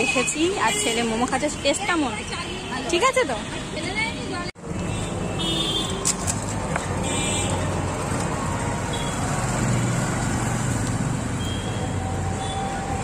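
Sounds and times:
low hum of road traffic: 0.0s - 13.0s.

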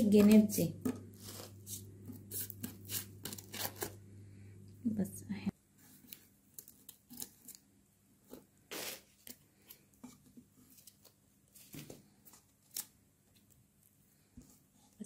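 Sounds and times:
small scissors snipping paper: 6.1s - 7.6s.

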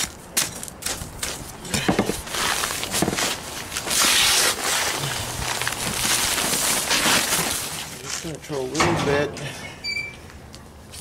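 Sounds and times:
paper bag rustling: 2.0s - 8.4s.

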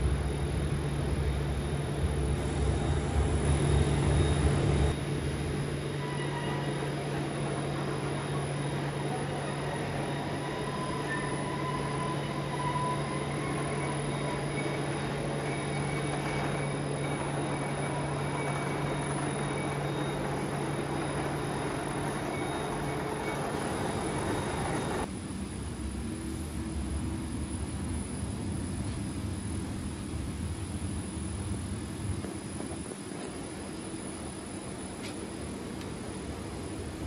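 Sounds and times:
milling machine humming: 0.0s - 25.1s
faint high-pitched whines: 0.0s - 37.0s.

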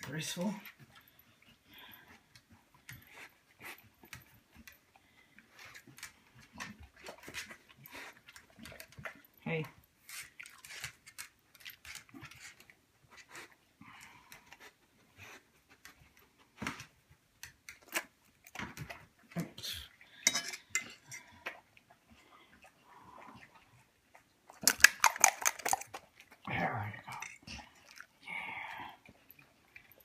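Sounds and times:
metal fork clicks and clinks: 20.2s - 21.0s.

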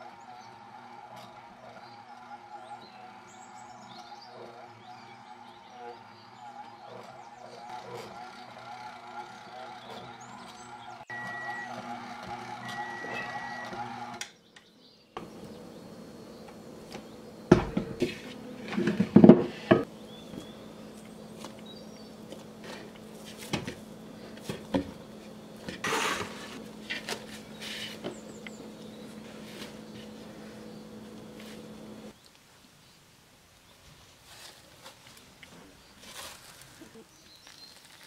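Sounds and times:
stand mixer motor running: 0.0s - 14.2s, 19.7s - 32.1s
steady low hum: 15.2s - 32.2s.

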